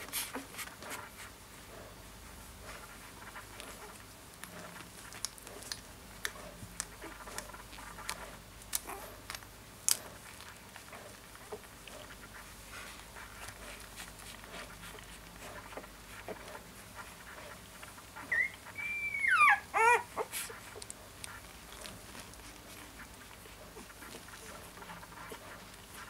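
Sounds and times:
puppy whimpering: 8.8s - 9.3s, 18.1s - 20.9s.

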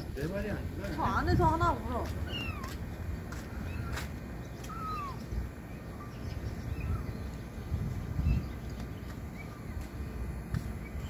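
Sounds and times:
low rumbling background noise: 0.0s - 11.0s.

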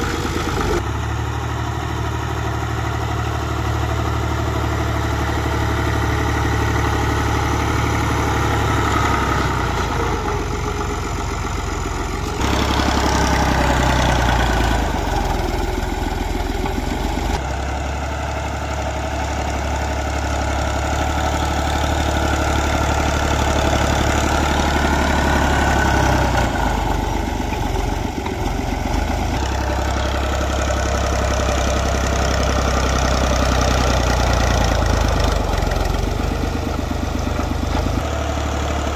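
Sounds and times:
tractor diesel engine running: 0.0s - 38.9s
blade pushing soil: 12.2s - 17.4s.

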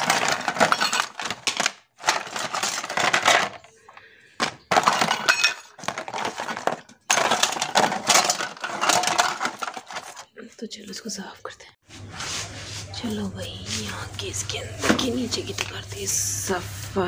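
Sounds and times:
art supplies clattering in basket: 0.0s - 10.3s.

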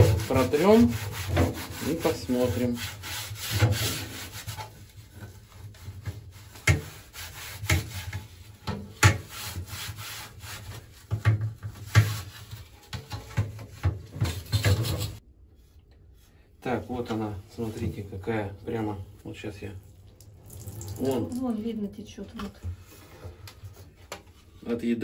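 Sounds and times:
cloth wiping plastic: 0.0s - 18.1s.

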